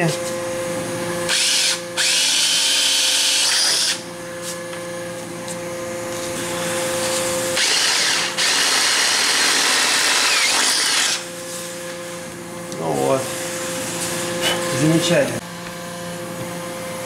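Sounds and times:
cordless drill whining: 1.3s - 4.0s, 7.4s - 11.3s.

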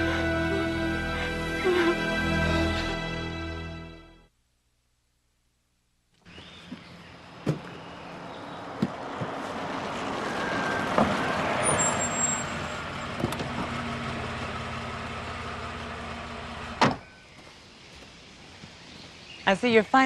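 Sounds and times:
car engine idling: 12.6s - 17.0s.

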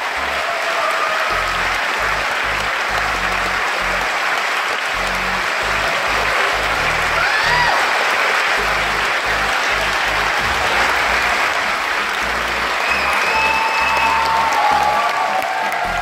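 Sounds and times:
audience clapping: 0.0s - 16.0s
music with beating bass: 1.3s - 4.2s, 4.9s - 7.9s, 8.5s - 15.1s, 15.8s - 16.0s.

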